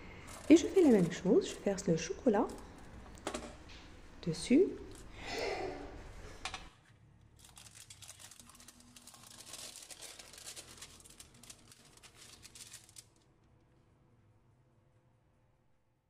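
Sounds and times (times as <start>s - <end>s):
baking paper crinkling: 0.1s - 2.8s, 7.3s - 13.3s.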